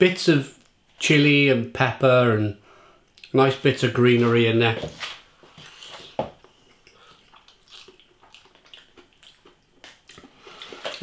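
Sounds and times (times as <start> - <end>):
slurping and chewing noodles: 5.6 - 11.0.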